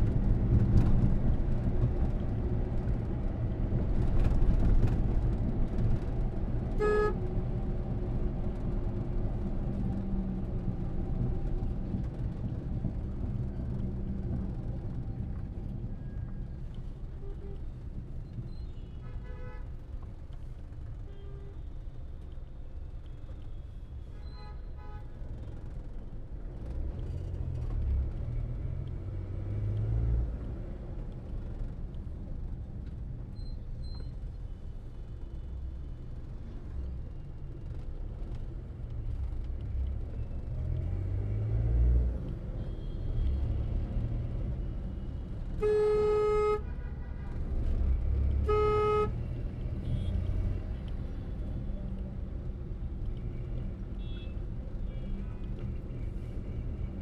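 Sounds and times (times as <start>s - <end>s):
car engine and road rumble: 0.0s - 57.0s
car horn toots: 45.6s - 46.8s, 48.4s - 49.2s.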